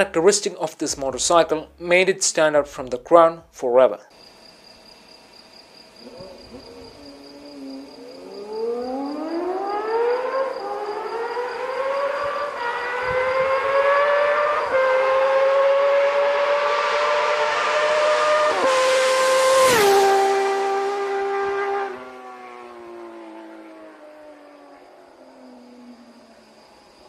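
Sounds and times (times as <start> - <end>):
motorcycle engine accelerating: 6.0 - 27.0.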